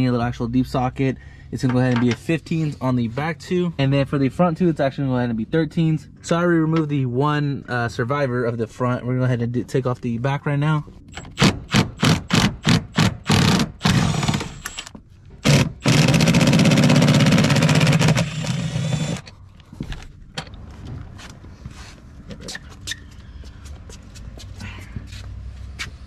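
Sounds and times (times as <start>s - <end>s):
power tool rattling: 11.2s - 19.3s.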